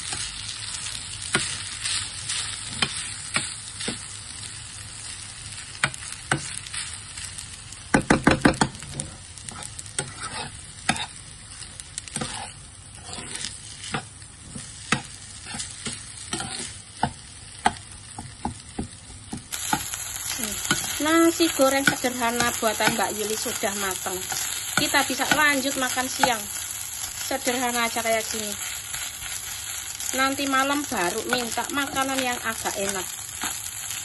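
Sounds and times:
rice sizzling in a frying pan: 0:00.0 - 0:34.0
spatula scraping a pan: 0:08.8 - 0:11.2, 0:12.0 - 0:17.8.

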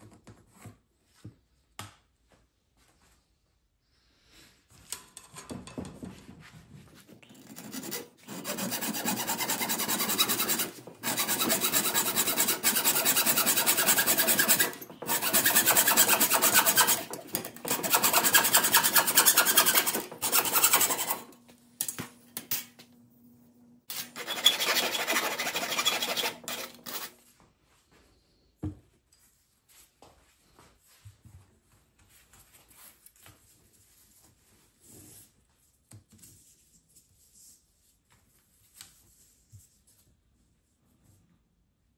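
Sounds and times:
abrasive rasping on workpiece: 0:07.4 - 0:21.3, 0:23.9 - 0:27.1.

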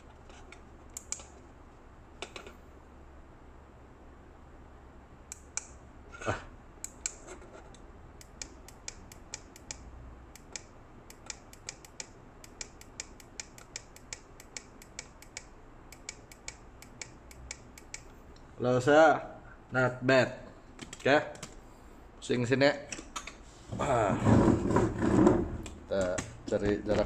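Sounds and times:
small buttons clicking: 0:00.9 - 0:01.4, 0:08.2 - 0:18.2.

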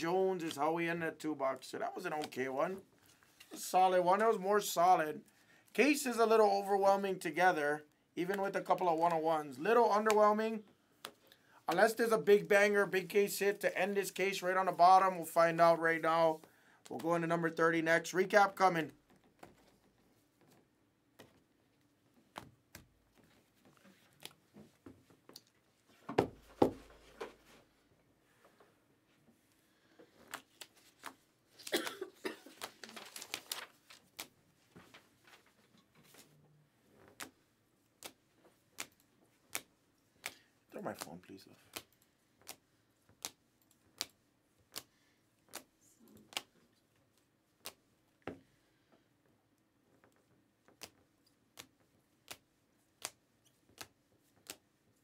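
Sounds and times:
trading cards being handled: 0:19.3 - 0:27.7, 0:30.0 - 0:31.7, 0:32.4 - 0:36.4, 0:37.0 - 0:47.9, 0:49.9 - 0:54.6.

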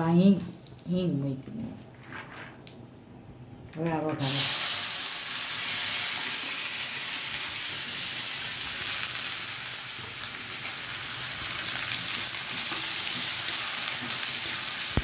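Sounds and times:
vegetables sizzling in hot oil: 0:04.2 - 0:15.0.

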